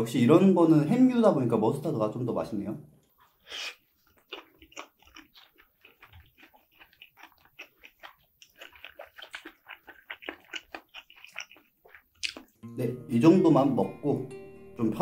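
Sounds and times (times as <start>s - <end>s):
person chewing meat: 3.2s - 12.6s.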